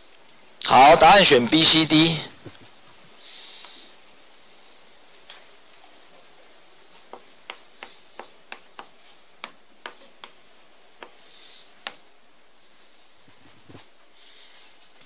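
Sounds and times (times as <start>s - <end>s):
chalk tapping on blackboard: 7.1s - 10.4s, 11.0s - 11.2s.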